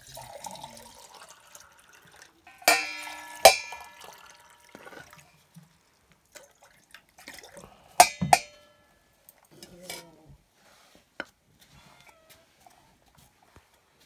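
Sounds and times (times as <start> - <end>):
ringing metal clanks: 2.5 - 5.0, 8.0 - 9.0.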